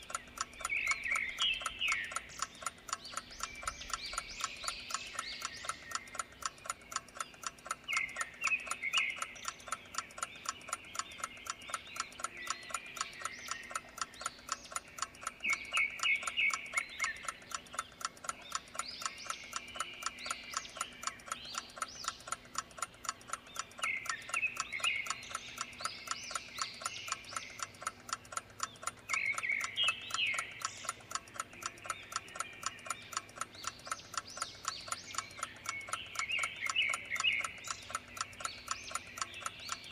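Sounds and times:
clock ticking: 0.0 - 39.9
high chirping calls: 0.0 - 39.9.

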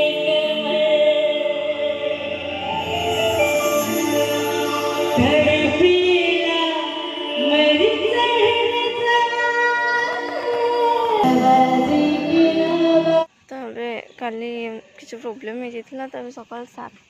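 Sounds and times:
instrumental accompaniment: 0.0 - 9.4, 10.2 - 13.3
woman singing into microphone: 0.0 - 13.3.

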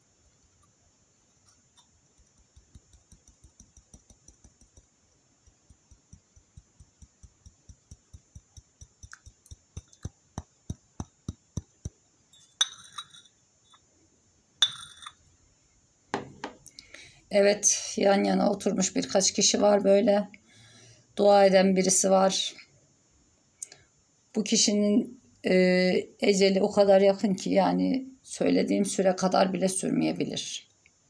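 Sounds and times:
soft even taps: 1.8 - 12.0
porcelain cup and saucer clinks: 12.4 - 13.4, 14.6 - 15.2.

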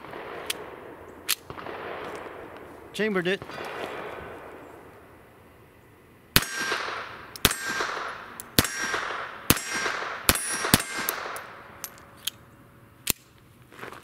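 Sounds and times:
pistol shots with echo: 0.0 - 2.6, 6.4 - 11.8
metallic ring of steel targets: 6.4 - 12.3.

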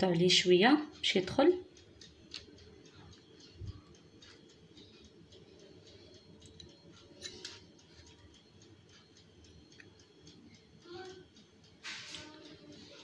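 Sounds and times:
small kitchen clicks: 6.0 - 8.4.

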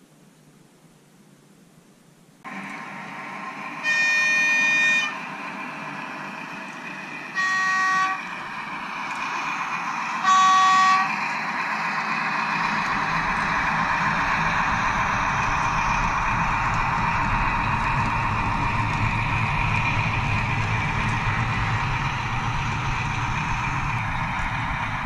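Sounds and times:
train running noise: 2.4 - 25.0
locomotive horn blasts: 3.8 - 5.2, 7.3 - 8.4, 10.1 - 11.4.

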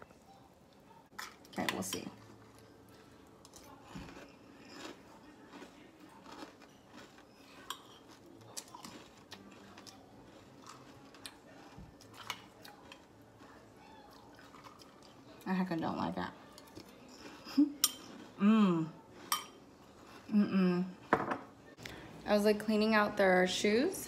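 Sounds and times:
chewing and crunching cereal: 0.7 - 21.1.

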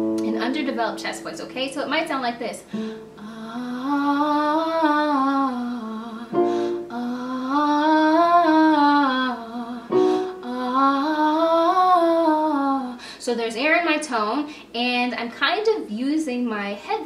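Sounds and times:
keyboard note: 0.0 - 1.5
woman singing scale phrases: 0.2 - 17.0.

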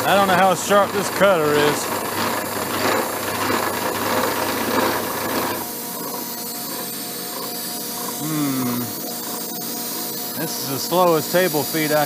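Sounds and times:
milling machine whine: 0.0 - 12.0
rasping metal cutting noise: 0.0 - 12.0.

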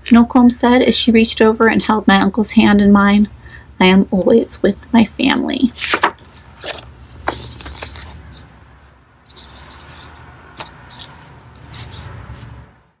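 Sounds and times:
book pages rustling: 5.8 - 8.6, 9.3 - 12.7.

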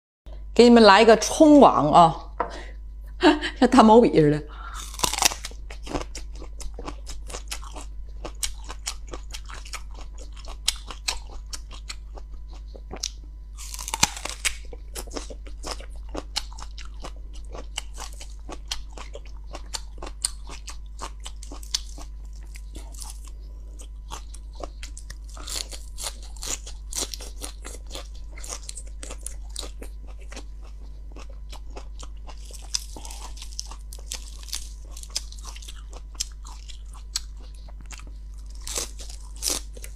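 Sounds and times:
steady low hum: 0.3 - 39.9
crunchy vegetable chewing: 4.6 - 39.9.

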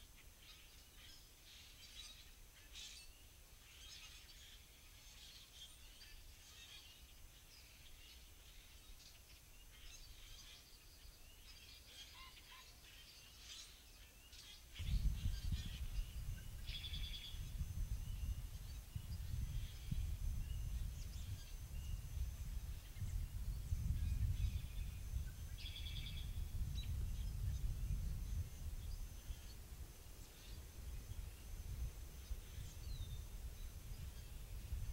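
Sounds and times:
birds singing and calling: 0.0 - 34.9
wind buffeting microphone: 14.8 - 34.9.

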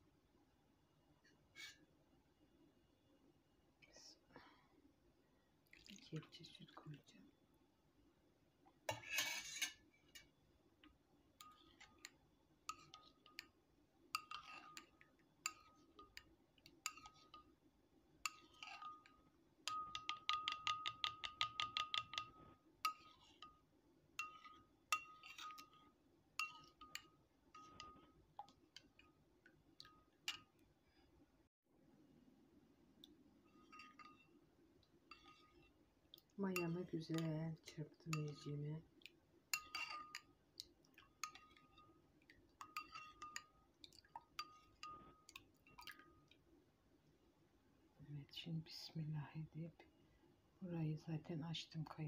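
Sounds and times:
spoon scraping bowl: 1.5 - 1.8, 8.9 - 10.3, 11.4 - 13.5, 14.2 - 17.5, 18.2 - 23.6, 24.2 - 29.2, 33.5 - 34.4, 35.1 - 35.8, 36.5 - 38.5, 39.5 - 40.3, 41.0 - 41.9, 42.6 - 43.6, 44.2 - 46.1
spoon clinking against bowl: 11.4 - 17.5, 18.2 - 23.6, 24.2 - 29.2, 29.8 - 30.6, 33.6 - 34.4, 36.5 - 37.3, 39.5 - 40.4, 41.0 - 42.0, 42.6 - 43.6, 44.2 - 46.3.

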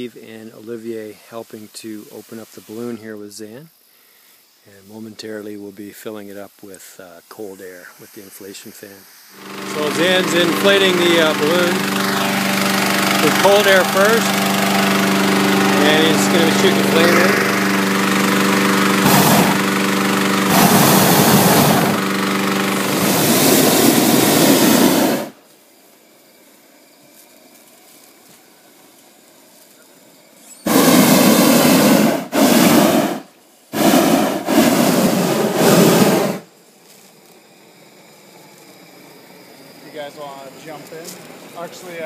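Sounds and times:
propane burner blasts: 8.2 - 25.4, 30.6 - 36.5, 38.5 - 42.0.

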